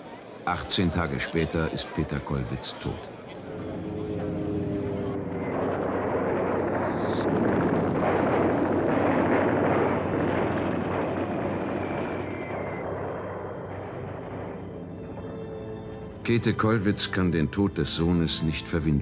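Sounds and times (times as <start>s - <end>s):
artillery and shell explosions: 3.4s - 18.4s.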